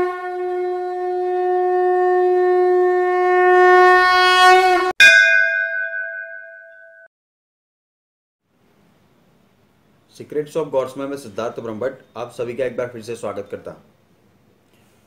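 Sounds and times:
conch shell blown: 0.0s - 5.6s.

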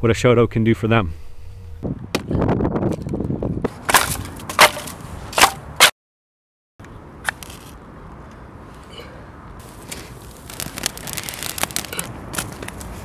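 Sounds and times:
sharp chopping strikes: 3.9s - 5.9s
wood cracking and splintering: 9.9s - 12.8s.

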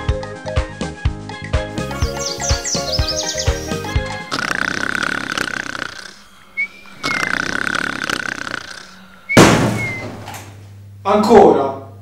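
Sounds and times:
man snoring: 2.5s - 10.1s
whistling breath: 5.0s - 10.3s.

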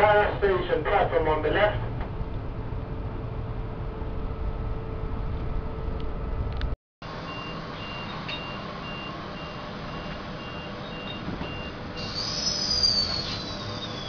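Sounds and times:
low carriage rumble: 0.0s - 14.0s
train door warning beeps: 7.2s - 12.1s.

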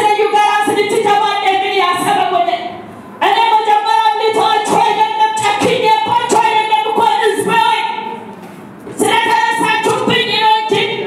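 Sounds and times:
women singing worship song: 3.2s - 7.9s, 9.0s - 11.0s.

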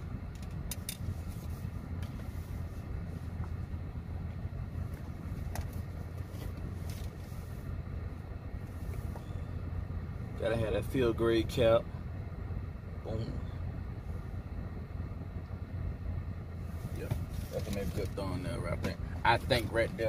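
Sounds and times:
handling clicks and rustles: 0.0s - 9.4s, 16.8s - 20.0s
car cabin rumble: 0.0s - 20.0s.

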